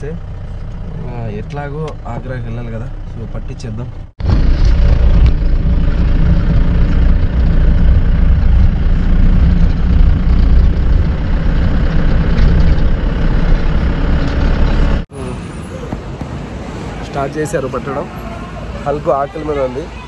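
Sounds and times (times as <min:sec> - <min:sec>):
diesel engine running: 0:00.0 - 0:15.4.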